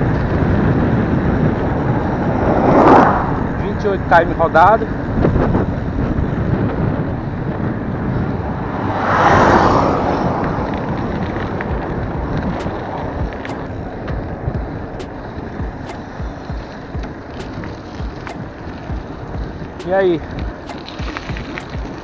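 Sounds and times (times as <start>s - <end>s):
wind buffeting microphone: 0.0s - 22.0s.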